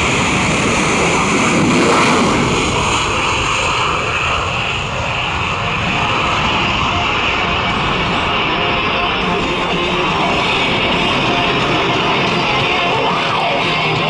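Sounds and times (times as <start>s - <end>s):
jet fighter taking off: 0.0s - 14.0s.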